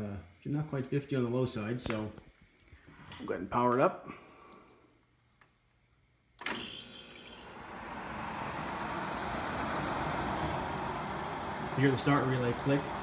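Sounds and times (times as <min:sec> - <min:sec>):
relay click: 0:06.4 - 0:06.8
dehumidifier fan noise: 0:07.4 - 0:13.0.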